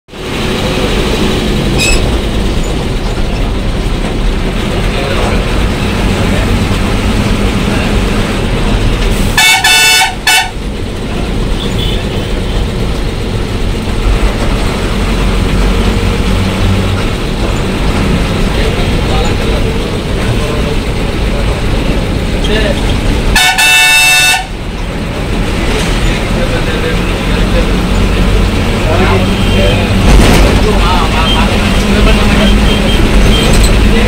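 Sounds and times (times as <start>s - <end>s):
heavy vehicle engine running: 0.1s - 34.0s
vehicle horn blasts: 9.4s - 10.6s, 11.6s - 12.3s, 23.3s - 24.5s.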